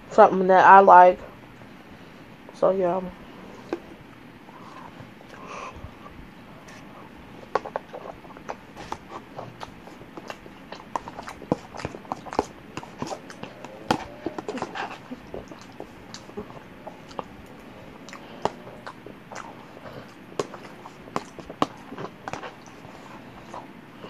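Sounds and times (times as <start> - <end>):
person chewing with mouth smacks: 6.6 - 23.8.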